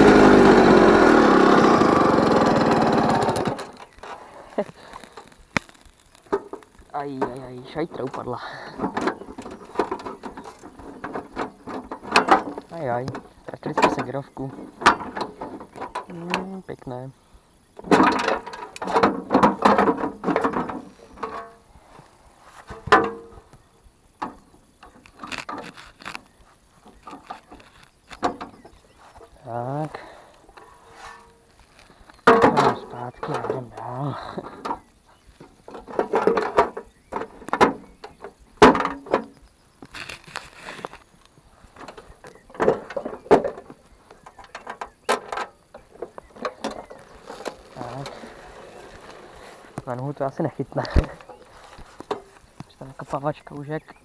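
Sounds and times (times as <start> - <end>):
moped kickstart clanking: 0.0 - 4.2.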